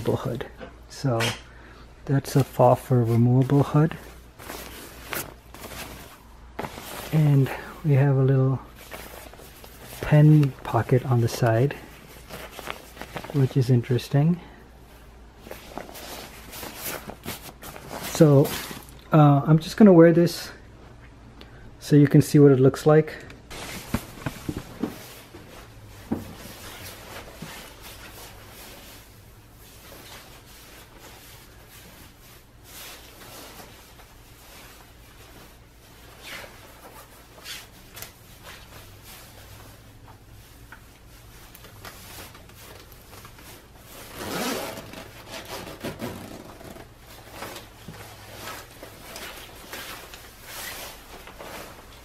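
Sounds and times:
nylon coat rustling: 2.2 - 14.2, 14.9 - 19.0, 23.5 - 52.0
metal zipper drawn up: 44.1 - 46.8.

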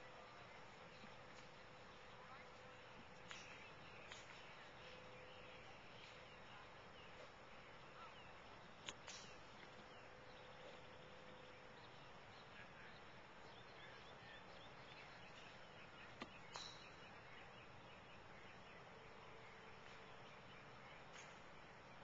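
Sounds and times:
light chirping: 0.3 - 18.2.

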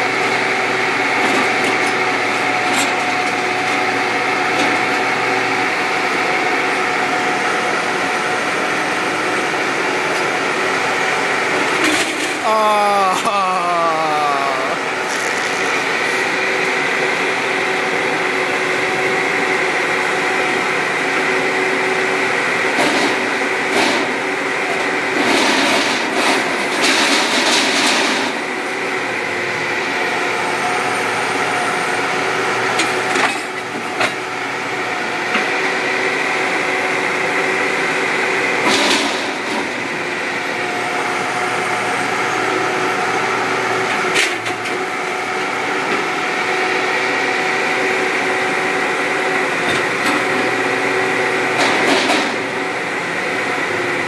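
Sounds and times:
crushing machine humming: 0.0 - 30.0.

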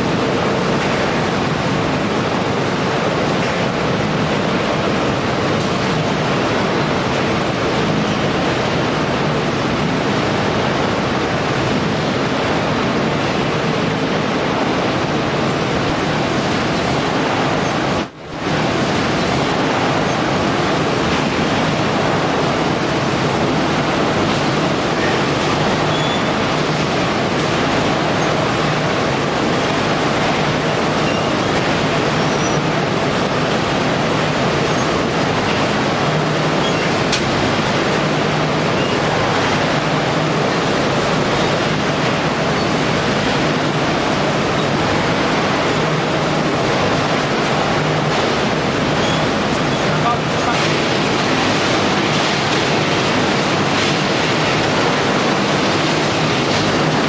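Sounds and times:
waste shredding line running: 0.0 - 57.0.

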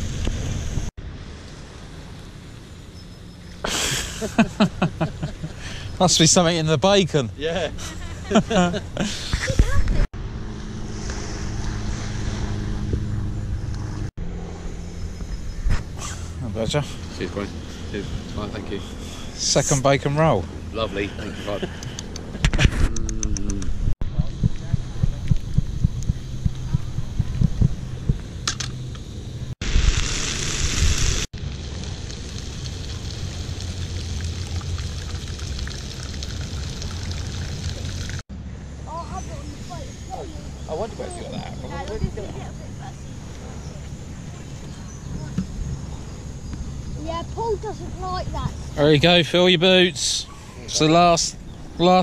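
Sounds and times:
engine droning hum: 0.0 - 29.6, 31.4 - 52.0
bacon sizzling in a frying pan: 29.7 - 36.8.

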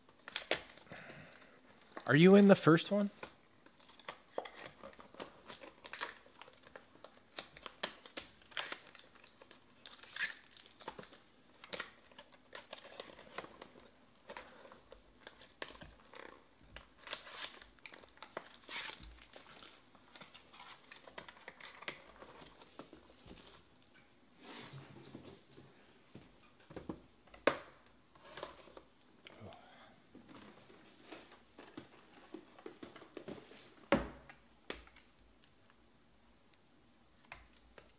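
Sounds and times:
card wrappers crinkling and tearing: 0.0 - 1.1, 1.7 - 23.8.

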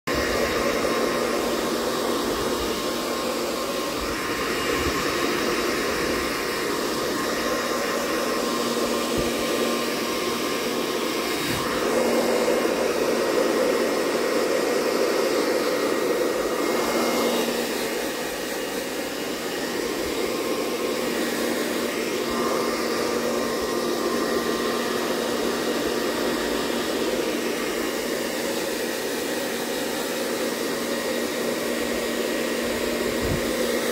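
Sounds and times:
hair dryer blowing: 0.0 - 33.9.

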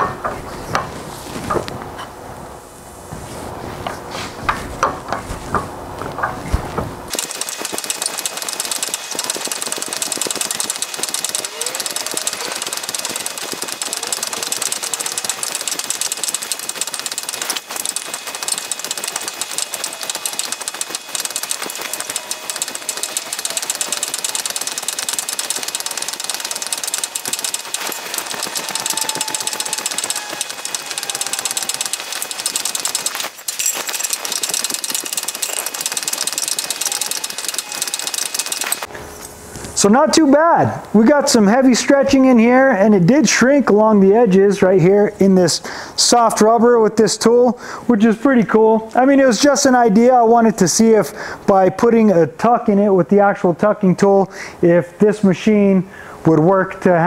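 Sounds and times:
press hammer pounding metal: 7.1 - 38.9.

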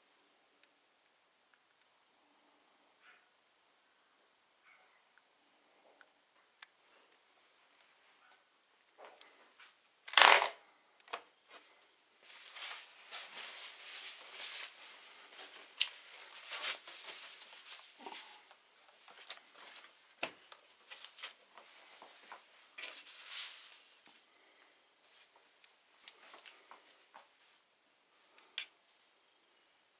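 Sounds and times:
plastic sheet crinkling: 10.1 - 10.6, 12.2 - 18.2.

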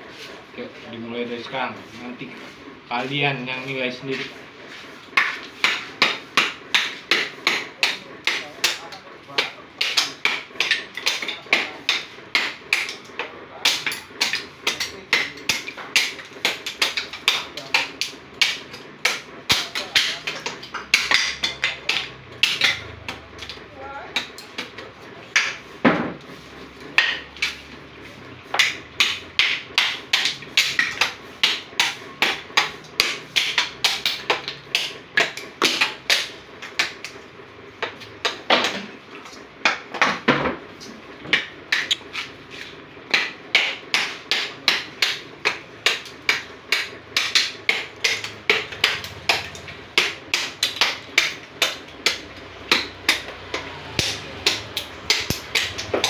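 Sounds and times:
hatchet striking coconut shell: 5.2 - 26.2, 26.9 - 27.6, 28.5 - 37.1, 43.1 - 56.0.

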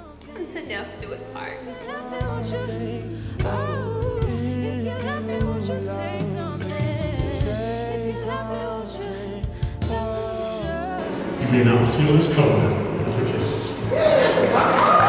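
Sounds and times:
slow song with singing: 0.0 - 14.0
sustained bass notes: 0.0 - 14.1.

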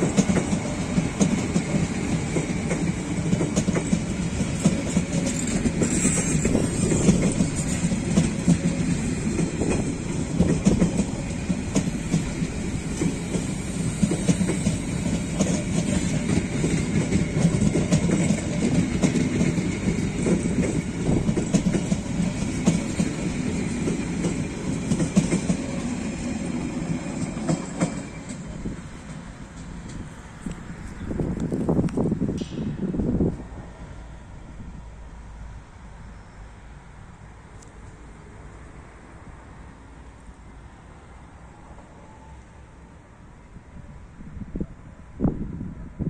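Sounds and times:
train wheels clacking: 0.0 - 33.9
train rumble: 0.0 - 46.0.

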